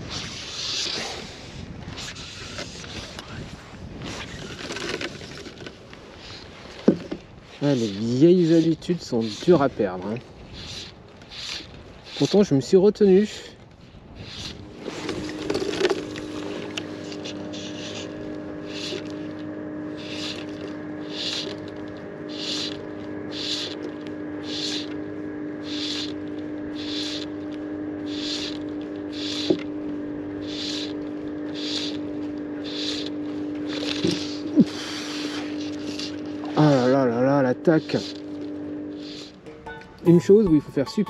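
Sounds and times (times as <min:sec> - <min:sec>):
distant motorboat engine drone: 0:00.0 - 0:41.0
fishing line stripped in hissing: 0:10.5 - 0:12.4, 0:14.2 - 0:19.3, 0:20.0 - 0:25.0, 0:25.6 - 0:29.7, 0:30.4 - 0:32.0, 0:32.6 - 0:36.9, 0:38.9 - 0:39.4.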